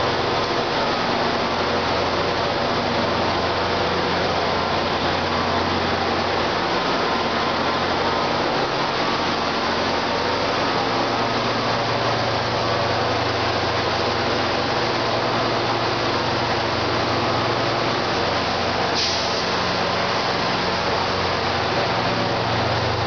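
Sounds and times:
diesel locomotives idling: 0:00.0 - 0:23.0
strong hiss: 0:18.8 - 0:22.3.

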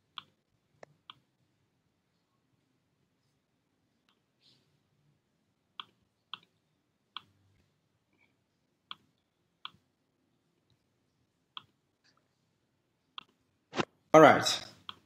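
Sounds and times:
computer mouse clicks: 0:05.8 - 0:07.3, 0:08.9 - 0:09.8, 0:11.5 - 0:12.2, 0:13.1 - 0:13.4.

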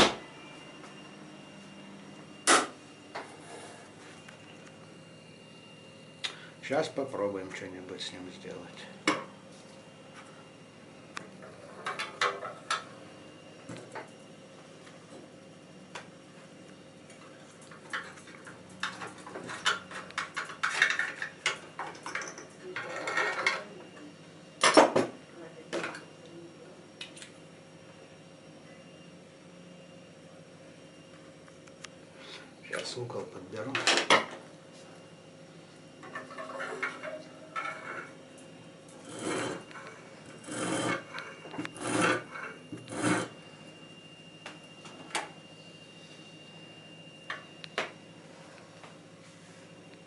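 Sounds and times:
tools clinking and scraping: 0:17.6 - 0:23.7, 0:36.0 - 0:38.2, 0:38.9 - 0:43.4
sharpening stone strokes on steel: 0:40.5 - 0:41.0.

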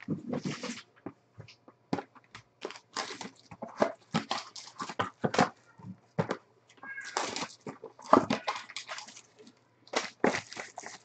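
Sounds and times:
foil packs crinkling: 0:02.6 - 0:05.6, 0:06.9 - 0:11.0.

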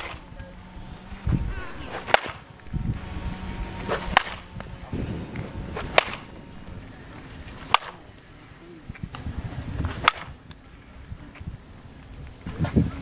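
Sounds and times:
bat hitting balls: 0:00.0 - 0:08.3, 0:09.9 - 0:10.4.

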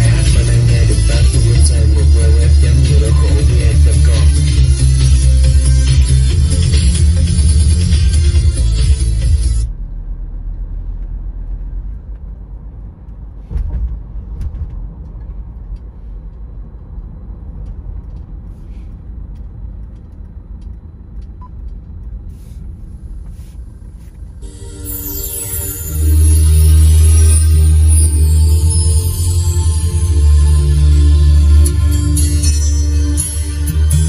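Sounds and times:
music: 0:00.0 - 0:09.7, 0:24.4 - 0:34.0
car cabin engine and tyre rumble: 0:00.0 - 0:25.6.

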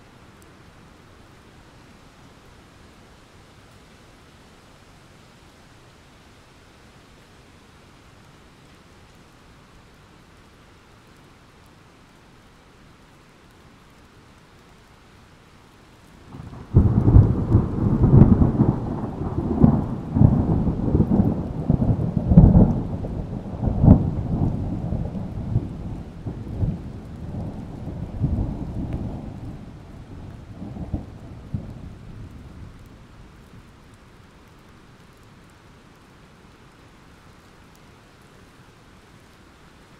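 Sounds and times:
steady rain: 0:00.0 - 0:39.9
rolling thunder: 0:16.3 - 0:32.8.

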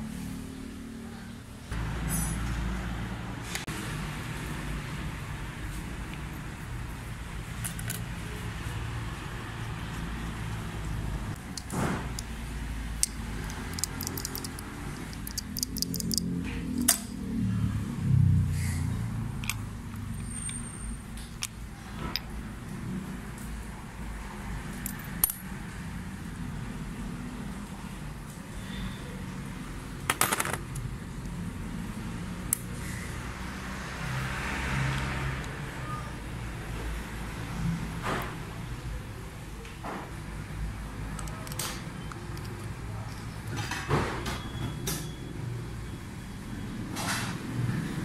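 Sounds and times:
metal parts clinking: 0:13.0 - 0:17.1.

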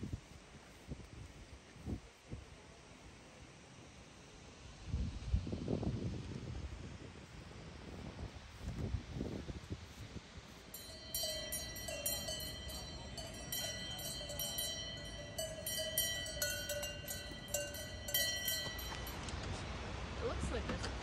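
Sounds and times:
cowbell clanking: 0:10.7 - 0:19.3.

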